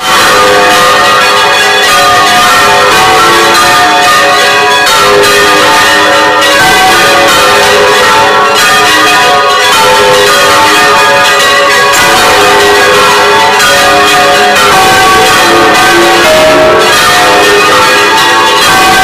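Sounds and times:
church bells pealing loudly: 0:00.0 - 0:19.0.

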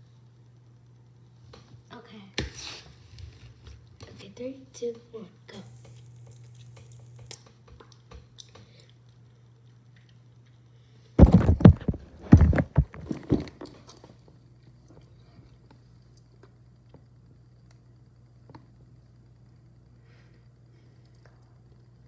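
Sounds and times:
faint steady hum: 0:00.0 - 0:22.0
phone handling bumps and rubbing: 0:11.2 - 0:13.6.

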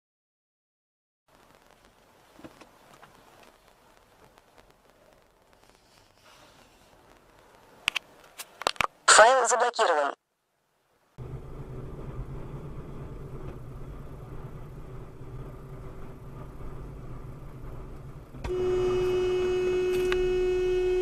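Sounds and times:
vehicle road and engine rumble: 0:11.2 - 0:21.0
car horn long note: 0:18.4 - 0:21.0.

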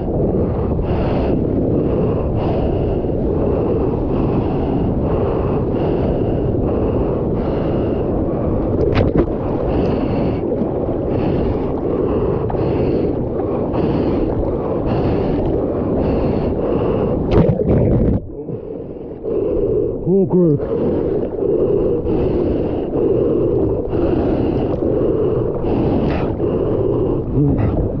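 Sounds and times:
wind buffeting microphone: 0:00.0 - 0:28.0.

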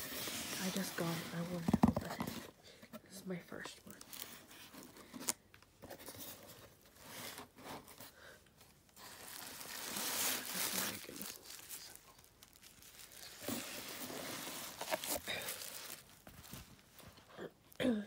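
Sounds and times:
bubble wrap crinkling: 0:00.0 - 0:02.3, 0:08.9 - 0:17.3.

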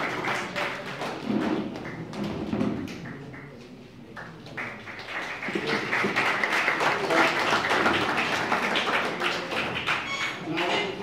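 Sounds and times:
audience applause: 0:00.0 - 0:02.2, 0:04.6 - 0:10.7.

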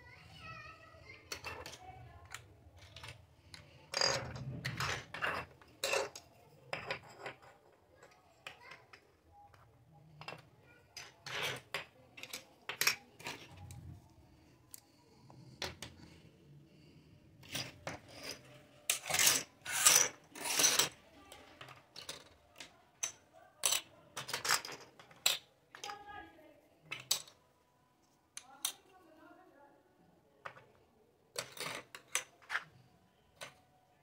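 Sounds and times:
plastic toy pieces clattering on table: 0:01.2 - 0:09.6, 0:10.2 - 0:13.8, 0:17.4 - 0:26.0, 0:26.9 - 0:27.4, 0:30.4 - 0:33.7.

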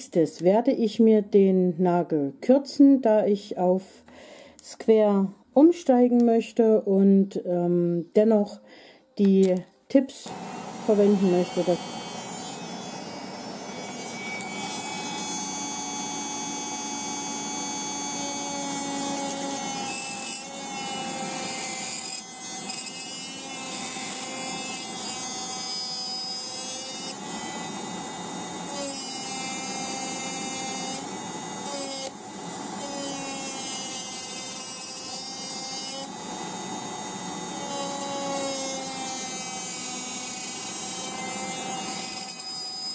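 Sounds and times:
electric nail drill grinding: 0:10.2 - 0:42.9.

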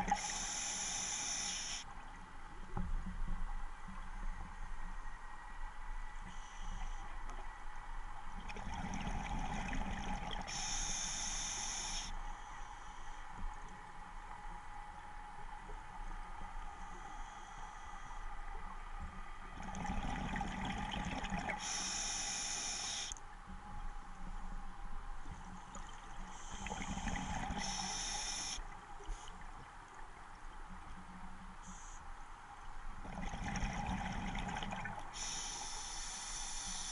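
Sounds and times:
regulator hiss: 0:00.0 - 0:01.9, 0:10.5 - 0:13.2, 0:21.6 - 0:23.2, 0:26.3 - 0:29.3, 0:35.1 - 0:36.9
exhaled air bubbling underwater: 0:08.4 - 0:12.1, 0:19.5 - 0:23.1, 0:25.7 - 0:29.2, 0:33.0 - 0:36.9
gurgling exhaled bubbles: 0:33.0 - 0:35.0.

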